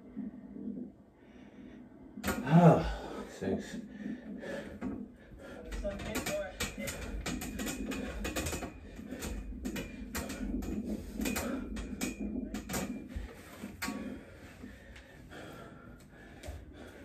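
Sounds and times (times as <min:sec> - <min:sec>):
metal dip bars clicking and creaking: 0:04.6 - 0:15.0.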